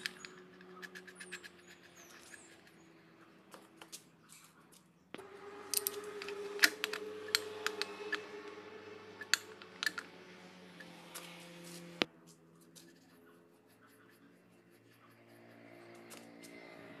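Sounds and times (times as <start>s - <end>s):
steady low hum: 0.0s - 17.0s
wrench clicking on metal: 5.7s - 8.3s, 9.2s - 10.1s.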